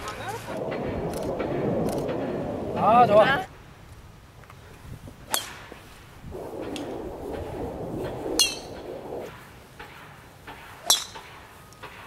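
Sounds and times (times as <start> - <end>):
golf club striking ball: 6.7 - 11.4.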